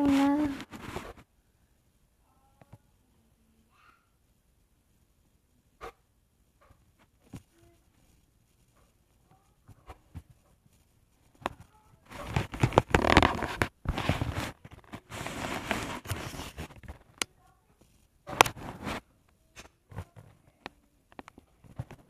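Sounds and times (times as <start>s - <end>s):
tablet handling rustling: 0.0s - 1.2s, 9.7s - 17.3s, 17.9s - 19.1s.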